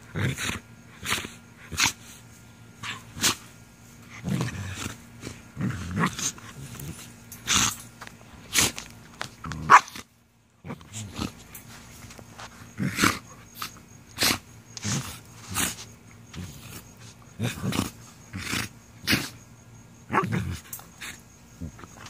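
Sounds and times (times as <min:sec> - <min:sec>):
puppies growling and yipping: 0:02.8 - 0:07.8.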